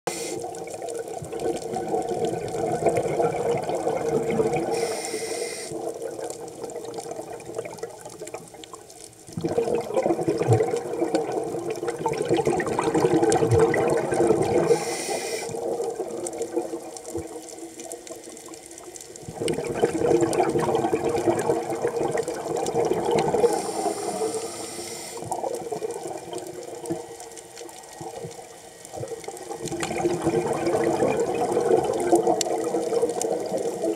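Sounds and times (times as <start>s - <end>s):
regulator inhalation hiss: 0.1s - 0.4s, 4.6s - 5.8s, 14.6s - 15.7s, 23.4s - 25.3s
bubbling exhalation underwater: 0.4s - 4.8s, 5.7s - 8.4s, 9.3s - 14.8s, 19.2s - 24.5s, 25.2s - 27.1s, 28.0s - 33.9s.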